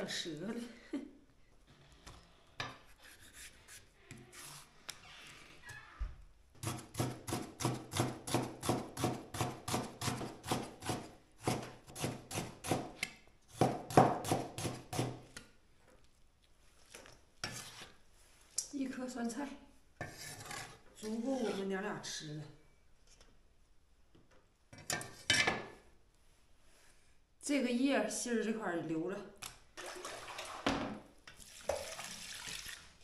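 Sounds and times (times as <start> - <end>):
cleaver chopping on wooden board: 13.6 - 15.2.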